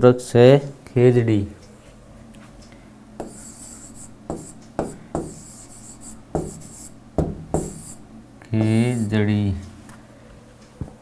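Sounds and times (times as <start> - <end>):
stylus scratching: 3.2 - 7.0, 7.6 - 8.0, 8.6 - 9.1
stylus tapping on tablet screen: 4.3 - 5.4.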